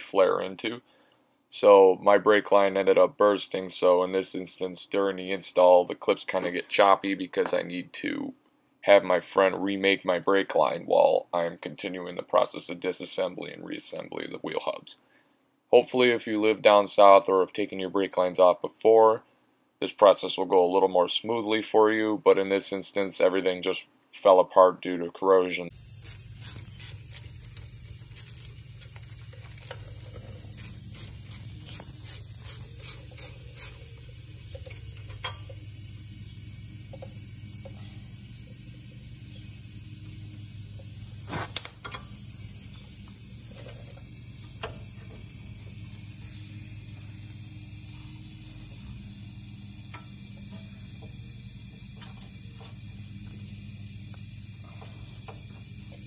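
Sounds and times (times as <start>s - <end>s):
steady low hum: 25.7s - 56.0s
metallic clicks and clinks: 26.0s - 35.7s, 41.5s - 42.2s.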